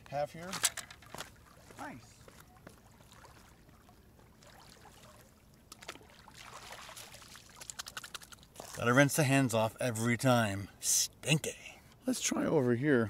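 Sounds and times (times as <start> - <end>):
water splashing from hand rinsing: 5.7 - 8.9.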